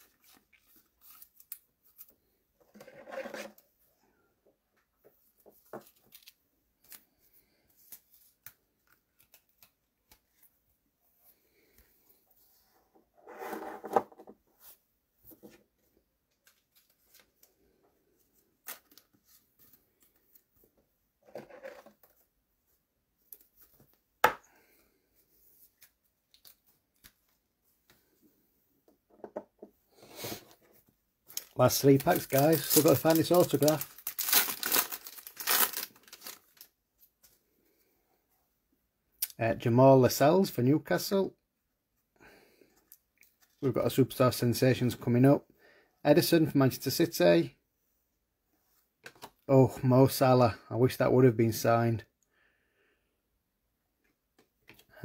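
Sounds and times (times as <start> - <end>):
card pack rustles: 31.3 - 36.8.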